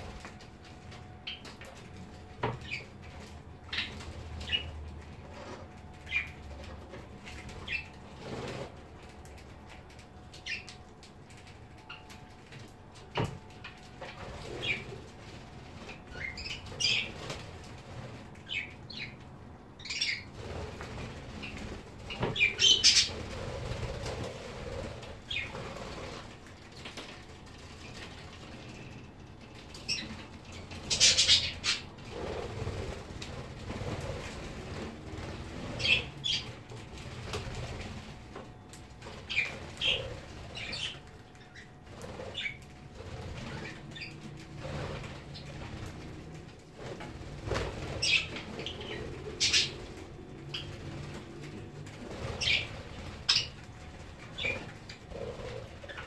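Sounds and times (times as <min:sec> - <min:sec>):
wings fluttering: 0:00.0 - 0:19.2, 0:19.8 - 0:56.0
budgerigars chirping: 0:22.3 - 0:23.2, 0:30.9 - 0:31.8, 0:48.0 - 0:49.7.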